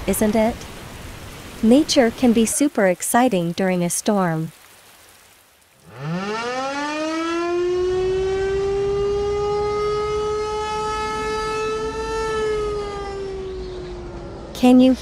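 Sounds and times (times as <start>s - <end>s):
tornado warning siren wailing: 5.8s - 15.0s.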